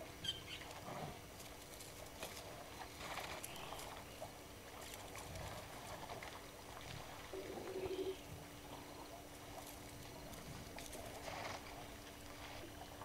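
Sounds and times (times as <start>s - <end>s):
soft clicks and rustles: 0.6s - 8.1s.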